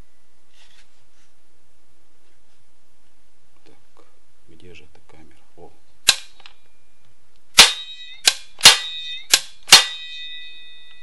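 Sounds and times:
brake spring ringing: 0:07.7 - 0:11.0.

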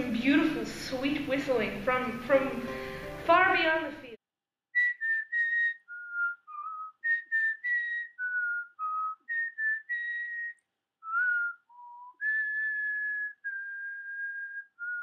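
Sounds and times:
person whistling a tune: 0:04.8 - 0:15.0.

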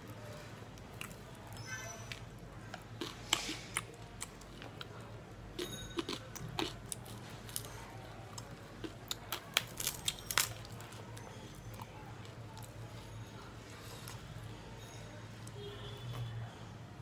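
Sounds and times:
chewing clicks and smacks: 0:00.8 - 0:12.8
flatbread being torn: 0:06.0 - 0:11.1.

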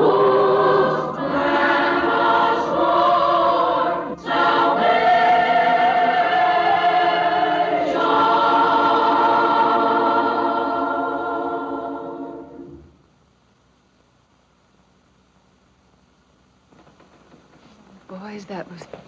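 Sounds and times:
boys' choir singing: 0:00.0 - 0:12.8.

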